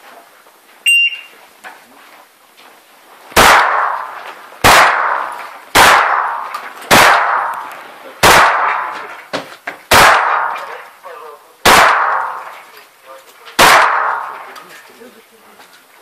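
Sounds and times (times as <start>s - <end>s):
shot timer beep: 0.9s - 1.3s
shotgun shots: 3.4s - 9.1s, 9.9s - 10.8s, 11.6s - 12.6s, 13.6s - 14.6s.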